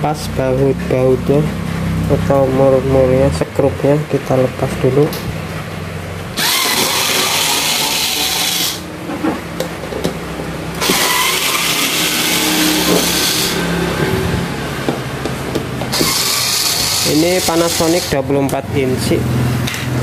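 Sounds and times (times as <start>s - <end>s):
small motor running: 6.4s - 8.9s, 10.8s - 13.7s, 15.9s - 18.2s.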